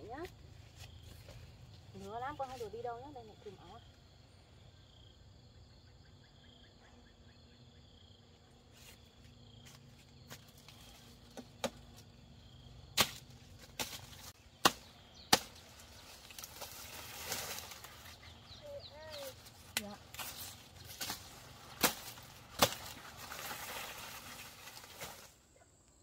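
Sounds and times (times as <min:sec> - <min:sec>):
blade chopping sugarcane: 0:11.3 - 0:12.1, 0:12.9 - 0:18.0, 0:19.7 - 0:25.3.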